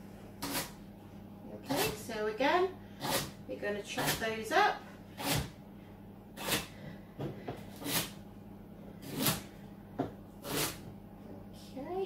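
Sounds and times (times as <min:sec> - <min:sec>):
knife chopping celery on board: 0:00.4 - 0:00.8, 0:01.7 - 0:02.0, 0:04.0 - 0:04.2, 0:07.7 - 0:08.1, 0:10.4 - 0:10.8.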